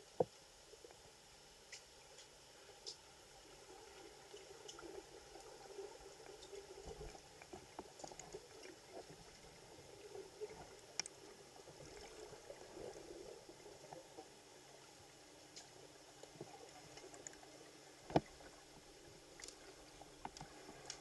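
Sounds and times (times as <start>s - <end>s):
muffled underwater water movement: 0.0s - 21.0s
small underwater clicks: 1.6s - 3.3s, 4.1s - 13.0s, 15.4s - 21.0s.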